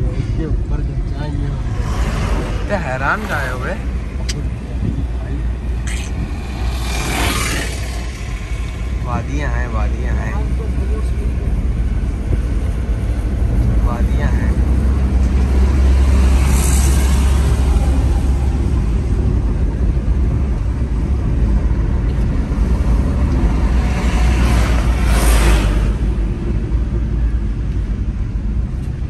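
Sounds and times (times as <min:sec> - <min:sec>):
rush of noise: 0:00.0 - 0:29.0
vehicle road rumble: 0:00.0 - 0:29.0.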